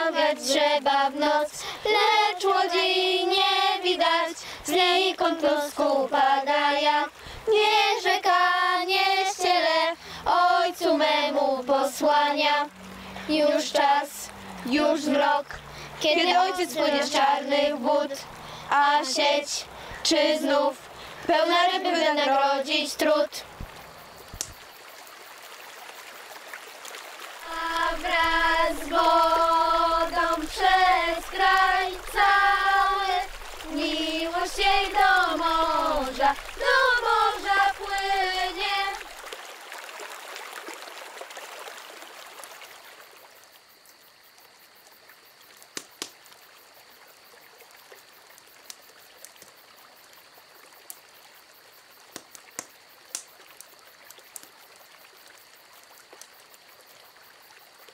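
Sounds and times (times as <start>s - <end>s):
person singing wordless melody: 0.0s - 4.1s, 13.3s - 20.7s
trickling river water: 0.0s - 57.9s
water drips: 8.9s - 21.8s, 22.9s - 57.9s.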